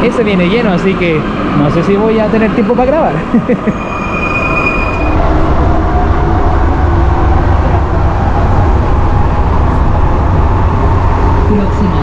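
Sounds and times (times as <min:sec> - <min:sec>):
metro train high whine: 0:00.0 - 0:12.0
train running rumble: 0:00.0 - 0:12.0.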